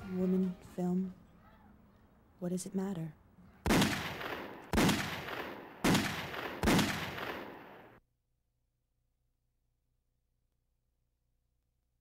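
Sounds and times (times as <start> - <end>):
loud echoing bangs: 3.6 - 8.0.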